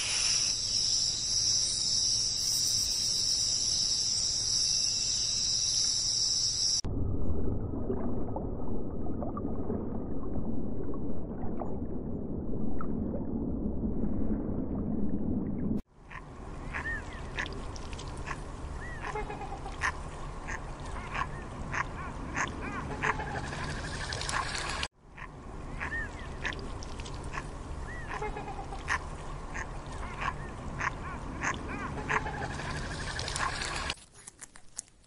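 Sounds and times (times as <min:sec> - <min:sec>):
waterfowl calling and chattering: 0:16.1 - 0:17.6, 0:18.2 - 0:26.6, 0:27.3 - 0:33.9.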